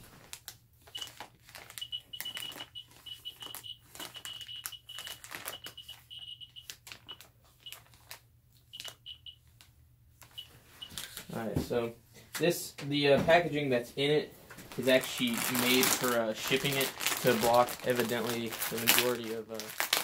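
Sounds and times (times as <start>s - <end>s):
plastic bag crinkling: 0.0s - 9.2s, 14.7s - 20.0s
high-pitched beeping tone: 1.8s - 6.7s.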